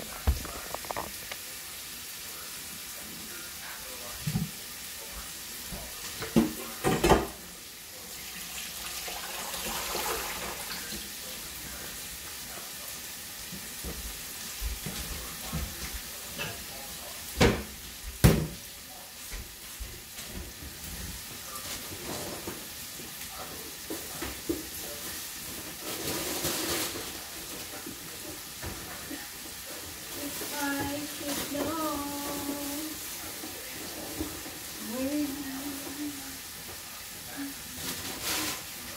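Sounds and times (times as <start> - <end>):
kitchen knocks and clatters: 0.0 - 1.4, 5.7 - 7.5, 13.5 - 22.7, 23.8 - 29.6, 33.3 - 34.8
beef frying in a pan: 0.0 - 38.9
food hissing on a stovetop: 0.0 - 38.9
pot boiling: 0.0 - 38.9.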